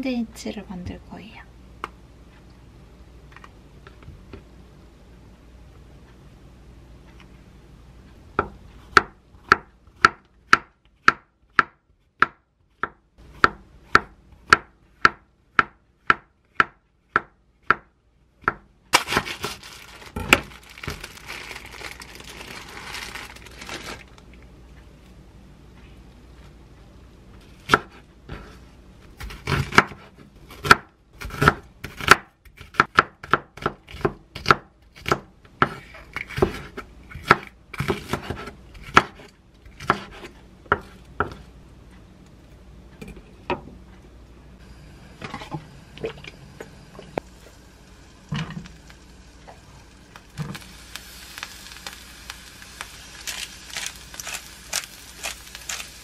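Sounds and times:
plastic wrapper crinkling: 19.0 - 24.4, 52.7 - 56.0.

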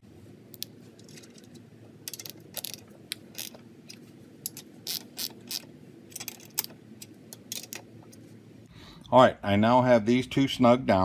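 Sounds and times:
ratchet wrench clicking: 4.5 - 6.7.

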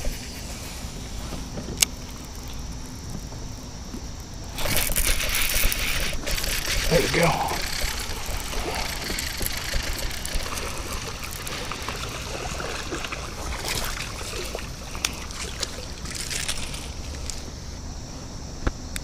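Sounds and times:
sharp clicks: 4.5 - 12.2
water splashing and trickling: 4.5 - 17.6.

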